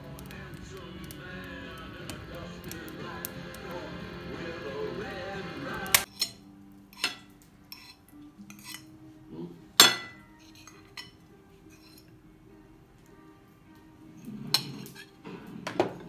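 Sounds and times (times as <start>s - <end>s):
background music: 0.0s - 16.0s
utensils clinking on ceramic plates: 6.0s - 8.9s, 9.8s - 12.1s, 14.4s - 16.0s.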